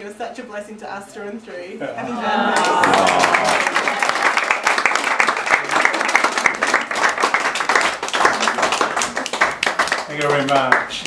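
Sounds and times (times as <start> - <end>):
people applauding: 2.3 - 11.0.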